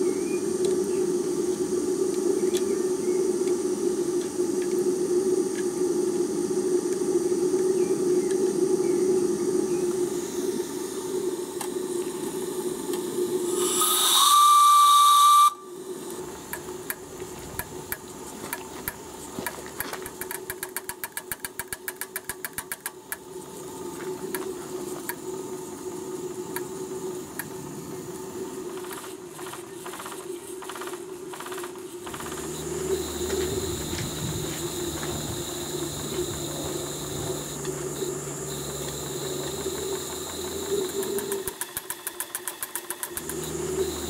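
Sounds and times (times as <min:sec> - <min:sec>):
steam plant hiss and hum: 0:00.0 - 0:44.0
steam whistle: 0:13.5 - 0:15.8
rapid even ticking: 0:16.5 - 0:23.3, 0:28.7 - 0:34.0, 0:34.7 - 0:44.0.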